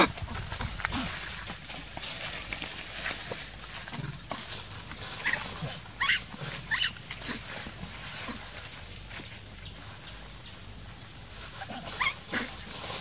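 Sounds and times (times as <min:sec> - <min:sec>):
high-pitched macaque squeals: 0:06.0 - 0:07.0, 0:11.6 - 0:12.5
faint macaque calls: 0:06.0 - 0:07.1, 0:11.6 - 0:12.5.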